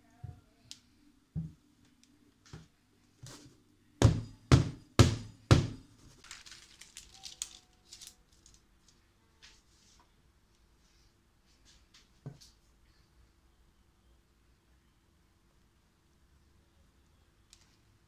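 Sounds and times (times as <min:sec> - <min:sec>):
metal cake pan knocking on counter: 0:04.0 - 0:05.8
small clicks and rattles: 0:06.2 - 0:09.0.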